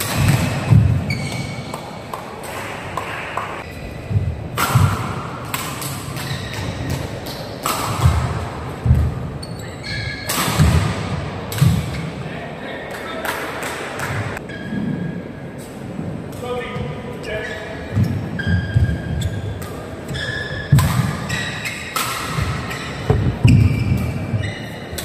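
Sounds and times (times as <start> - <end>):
shoe squeaks on court floor: 1.1 - 1.8, 6.2 - 6.9, 9.4 - 10.3, 17.3 - 22.0, 22.7 - 24.9
racket striking shuttlecock: 20.7 - 24.1.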